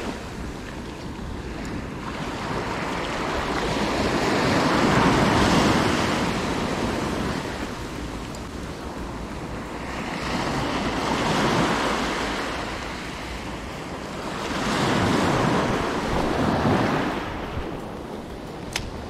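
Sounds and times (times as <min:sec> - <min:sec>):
small waves washing up a beach: 0:00.0 - 0:19.0
wind rumbling on microphone: 0:00.0 - 0:19.0
sharp click: 0:18.2 - 0:19.0.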